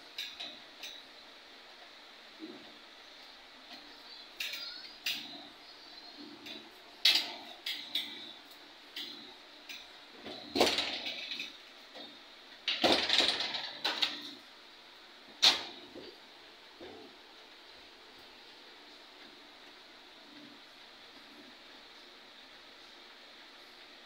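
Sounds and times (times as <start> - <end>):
glass door clacks and knocks: 12.7 - 14.0.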